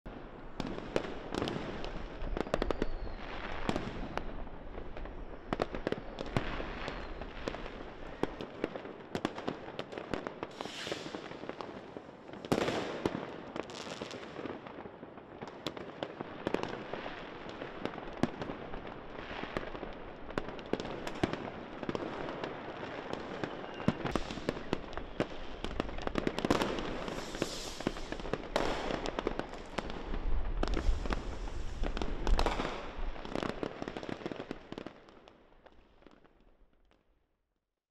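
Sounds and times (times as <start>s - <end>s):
fireworks banging and crackling: 0.1s - 37.0s
heavy firework blast: 10.5s - 11.4s, 26.6s - 33.3s.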